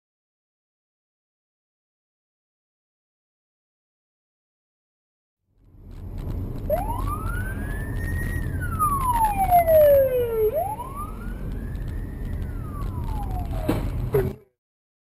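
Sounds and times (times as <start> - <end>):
moving car rumble: 5.5 - 14.6
siren wailing: 6.6 - 14.3.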